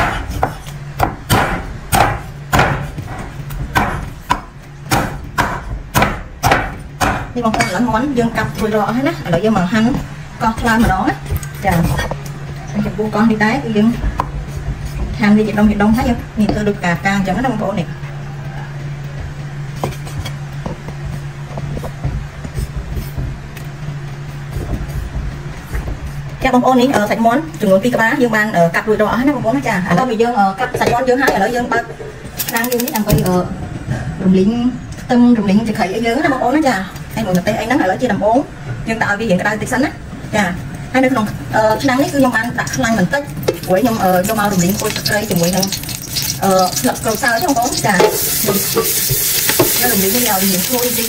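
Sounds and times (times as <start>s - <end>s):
cleaver chopping on wooden block: 0.0s - 2.9s, 3.7s - 7.7s
steady low hum: 0.0s - 51.0s.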